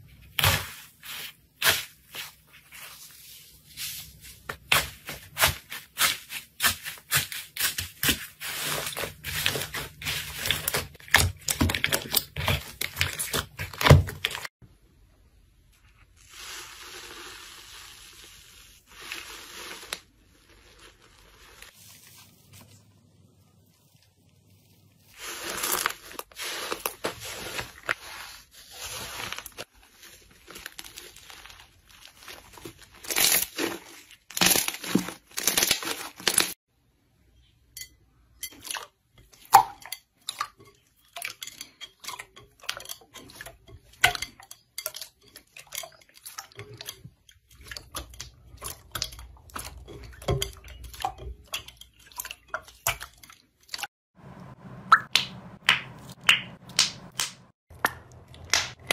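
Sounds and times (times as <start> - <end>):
foamy slime fizzing crackle: 16.1 - 22.2, 23.9 - 36.5.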